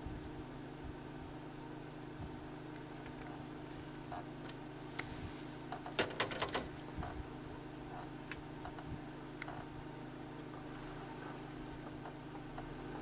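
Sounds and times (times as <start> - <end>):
vehicle engine idling: 1.9 - 13.0.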